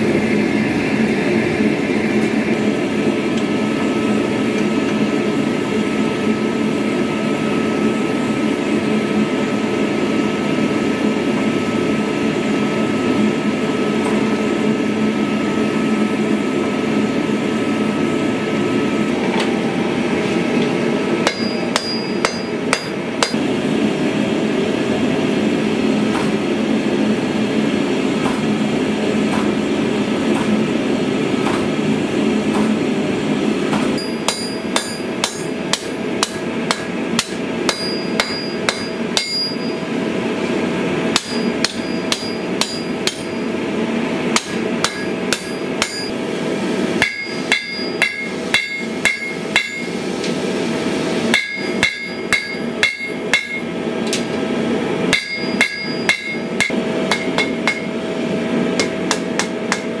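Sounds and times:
steady machine drone: 0.0s - 60.0s
hammer striking steel on anvil: 21.2s - 23.4s, 33.7s - 39.8s, 41.1s - 43.4s, 44.3s - 46.2s, 47.0s - 49.9s, 51.3s - 54.3s, 55.1s - 57.9s, 58.8s - 60.0s.

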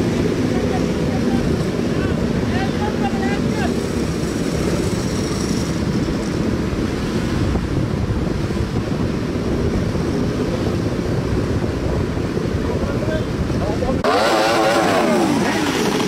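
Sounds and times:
motorcycle engines running: 0.0s - 16.0s
wind buffeting microphone: 0.0s - 16.0s.

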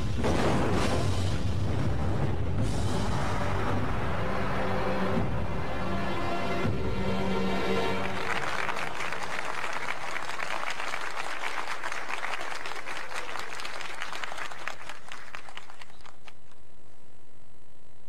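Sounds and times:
crowd applauding: 7.5s - 16.6s.

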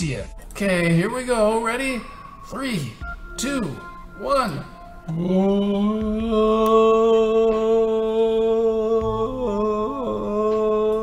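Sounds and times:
man holding long vocal note: 4.2s - 11.0s.

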